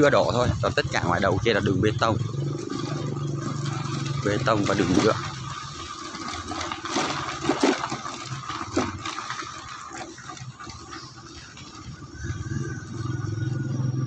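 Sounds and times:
tyres on rough unpaved road: 0:00.0 - 0:14.0
wind on microphone: 0:11.8 - 0:14.0.

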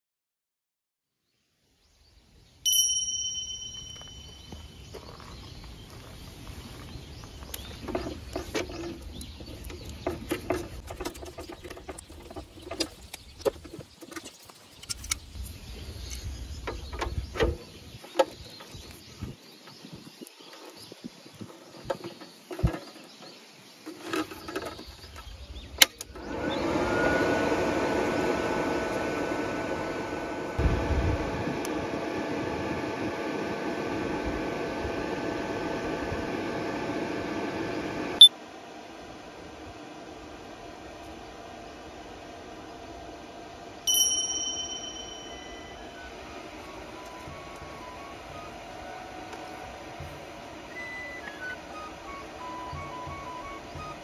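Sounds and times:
faint high whine: 0:02.7 - 0:06.8, 0:40.3 - 0:54.0
welder cooling fan whirring: 0:02.9 - 0:20.3, 0:24.8 - 0:54.0.

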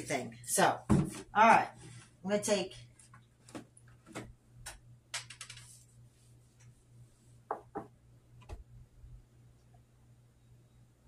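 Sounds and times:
faint steady low hum: 0:00.0 - 0:11.0
clicks and knocks on kitchen counter: 0:07.5 - 0:08.6.

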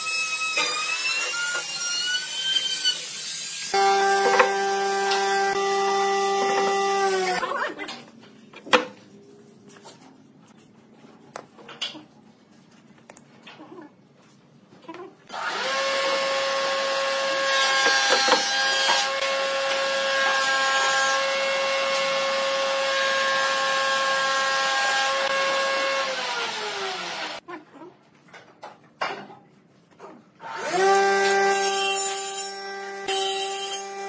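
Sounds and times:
power tool motor running: 0:03.7 - 0:07.4, 0:26.0 - 0:27.4.

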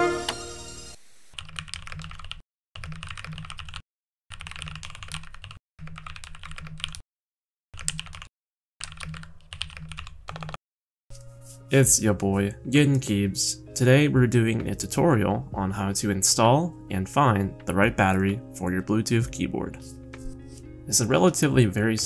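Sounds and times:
music: 0:00.0 - 0:01.0, 0:11.1 - 0:22.0
mechanical keyboard typing: 0:01.4 - 0:07.0, 0:07.8 - 0:10.6.

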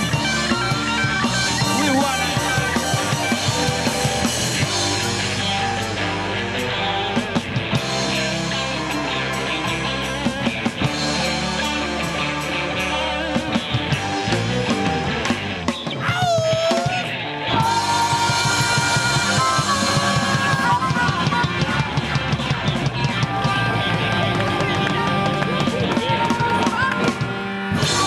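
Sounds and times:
bass guitar: 0:00.0 - 0:28.0
drum kit beat: 0:00.0 - 0:28.0
electric guitar: 0:00.0 - 0:28.0
harmonica: 0:17.6 - 0:24.3.

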